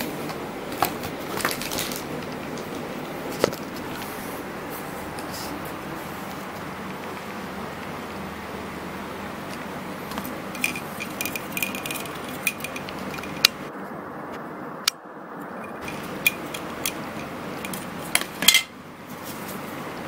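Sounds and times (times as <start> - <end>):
plastic packaging clicks and rattles: 0.8 - 2.8.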